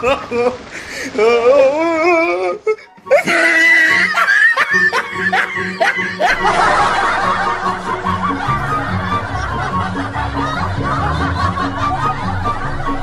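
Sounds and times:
background music: 0:00.0 - 0:13.0
people laughing: 0:03.1 - 0:13.0.

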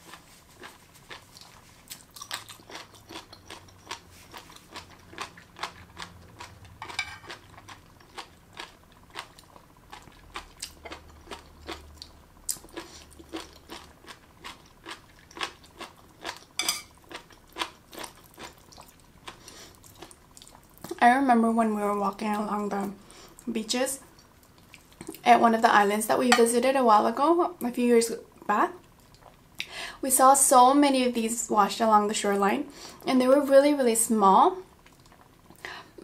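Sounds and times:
crunchy chewing: 0:00.0 - 0:20.9.

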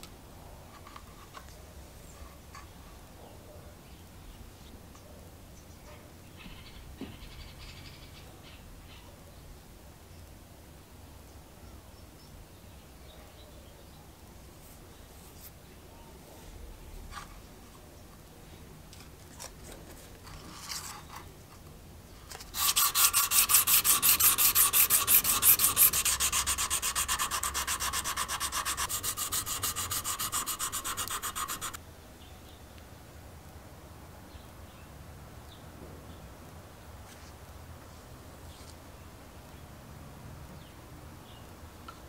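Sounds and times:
sanding brass plate: 0:22.5 - 0:31.8.

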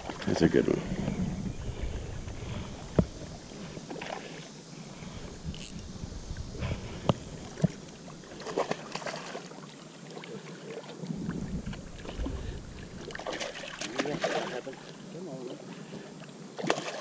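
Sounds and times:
water splashing and sloshing: 0:00.0 - 0:17.0.

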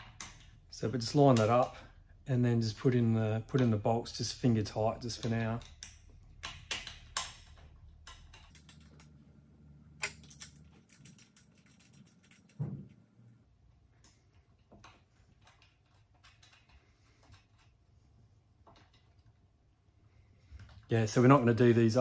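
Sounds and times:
small metal clicks and taps: 0:05.0 - 0:09.1.

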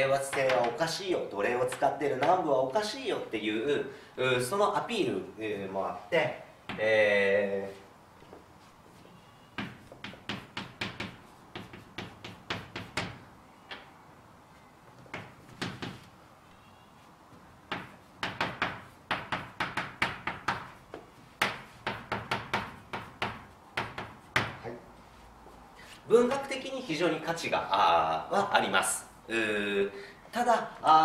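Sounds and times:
chalk tapping and scratching: 0:00.2 - 0:00.9, 0:09.6 - 0:13.8, 0:15.0 - 0:16.2, 0:17.7 - 0:26.0.

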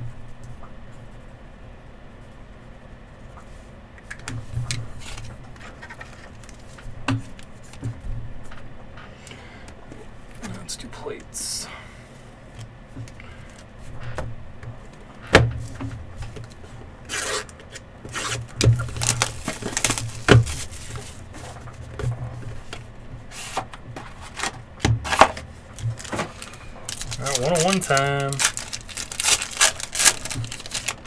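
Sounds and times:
cards and packaging rubbing: 0:17.1 - 0:21.5, 0:23.3 - 0:31.0.

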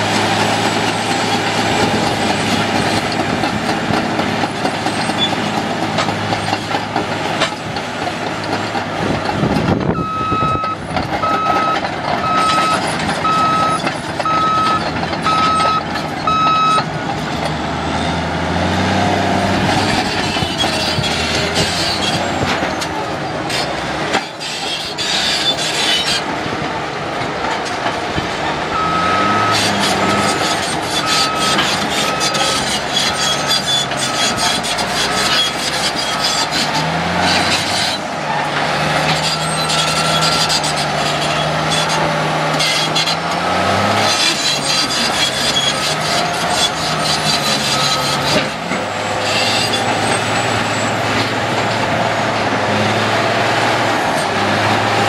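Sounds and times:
diesel engine running: 0:00.0 - 0:55.0
track clatter: 0:00.0 - 0:55.0
reverse alarm beeping: 0:10.0 - 0:16.8, 0:28.8 - 0:30.4.

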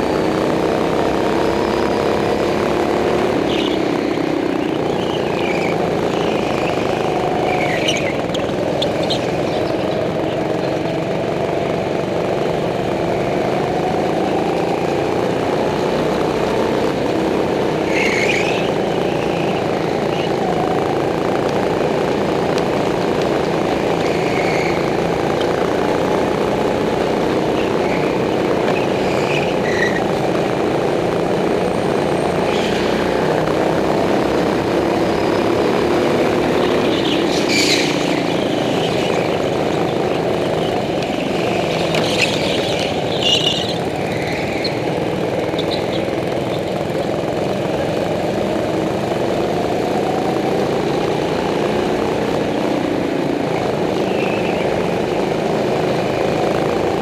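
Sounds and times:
go-kart engine revving: 0:00.0 - 0:57.0.

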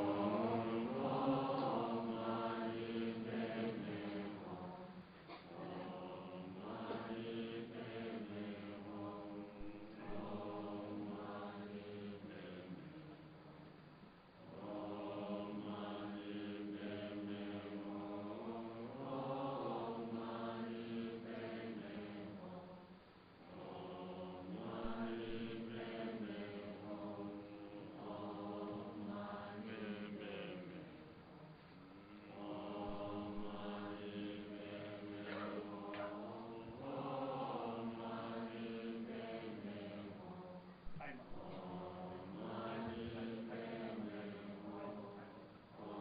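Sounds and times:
men chanting in unison: 0:00.0 - 0:13.0, 0:32.1 - 0:46.0.

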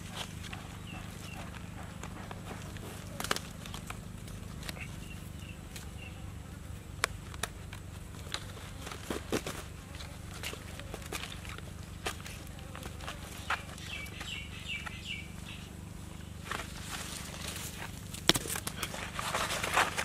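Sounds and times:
steady low hum: 0:00.0 - 0:20.0
cord clicks and rustles: 0:16.4 - 0:20.0.

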